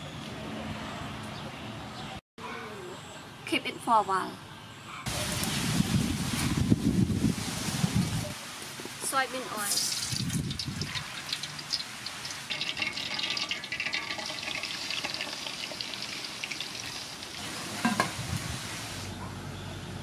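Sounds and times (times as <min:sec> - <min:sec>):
meat crackling and sizzling in oil: 0:07.0 - 0:19.0
oil pouring into pot: 0:09.8 - 0:18.2
pot lid knock: 0:17.8 - 0:18.2.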